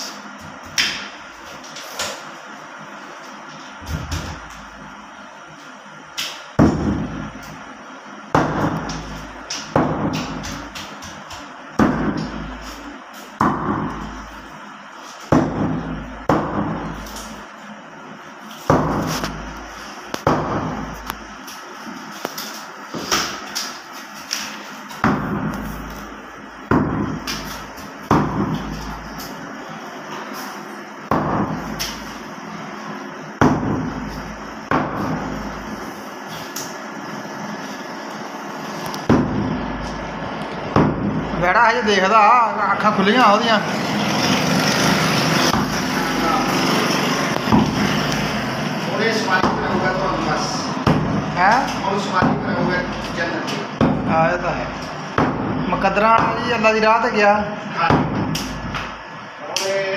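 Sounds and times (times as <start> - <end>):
cleaver chopping meat and bone: 8.3 - 12.6, 13.4 - 14.2, 15.3 - 17.0, 20.2 - 21.0, 26.7 - 29.0, 31.1 - 32.0, 33.4 - 35.3, 39.0 - 39.6, 49.4 - 49.8, 50.8 - 52.7, 53.8 - 54.2, 55.2 - 55.6, 57.9 - 58.9.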